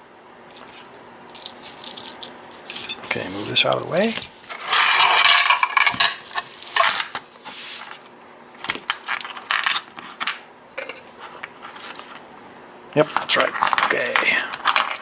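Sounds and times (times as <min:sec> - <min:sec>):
metal keys jangling: 0:01.3 - 0:03.0.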